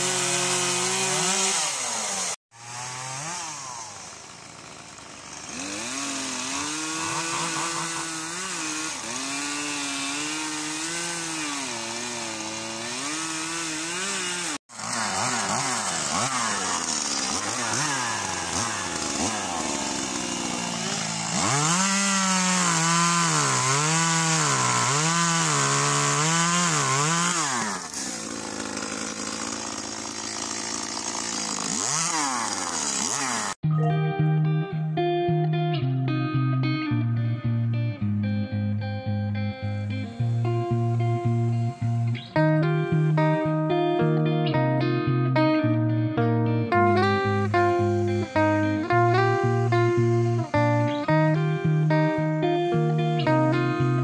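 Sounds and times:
chainsaw cutting branches: 0:00.0 - 0:33.6, 0:39.6 - 0:45.5, 0:46.7 - 0:54.0
guitar music: 0:33.6 - 0:54.0.

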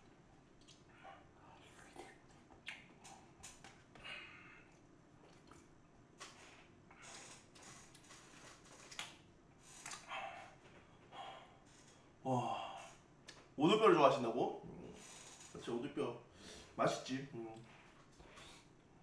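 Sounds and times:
soft chewing: 0:00.0 - 0:12.0.

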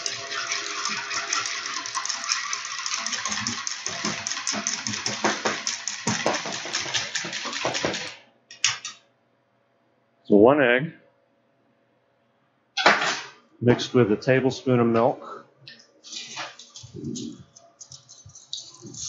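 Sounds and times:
wire whisk beating in a bowl: 0:00.0 - 0:08.2.

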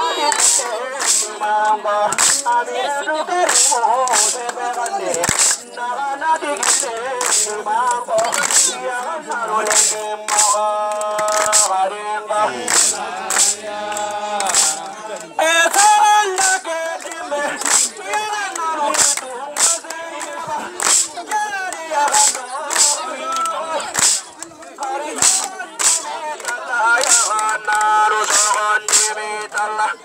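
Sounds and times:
voices singing: 0:00.0 - 0:30.0
sharp percussive cracks: 0:00.3 - 0:01.4, 0:02.1 - 0:02.6, 0:03.4 - 0:05.7, 0:06.6 - 0:08.8, 0:09.6 - 0:11.8, 0:12.6 - 0:14.9, 0:15.7 - 0:16.6, 0:17.4 - 0:24.3, 0:25.1 - 0:29.6.

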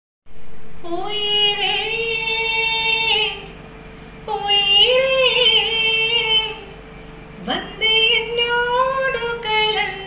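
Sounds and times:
woman singing unaccompanied: 0:00.8 - 0:03.6, 0:04.2 - 0:06.8, 0:07.4 - 0:10.0.

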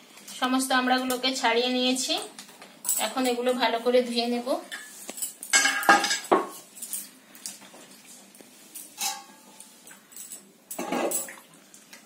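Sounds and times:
metal bowls clattering: 0:04.7 - 0:07.2, 0:08.9 - 0:09.6, 0:10.2 - 0:11.4.

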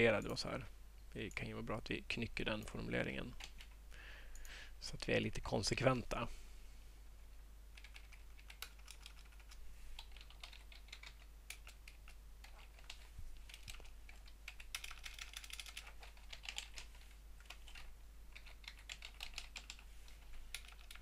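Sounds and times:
keyboard typing: 0:03.3 - 0:03.8, 0:07.7 - 0:21.0.

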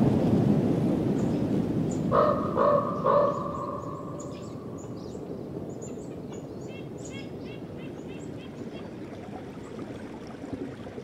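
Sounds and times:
small birds chirping: 0:02.7 - 0:09.0.

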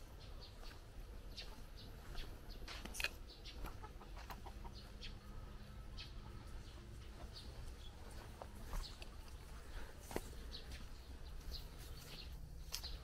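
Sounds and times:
faint steady hum: 0:00.0 - 0:13.0
low outdoor rumble: 0:00.0 - 0:13.0.

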